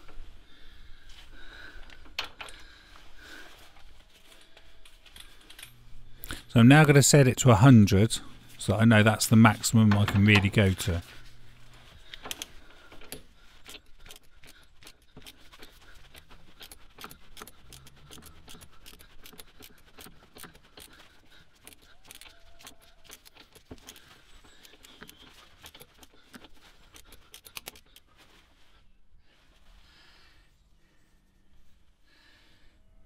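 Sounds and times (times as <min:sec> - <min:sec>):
torque wrench ratchet clicking: 0:13.6 - 0:28.1.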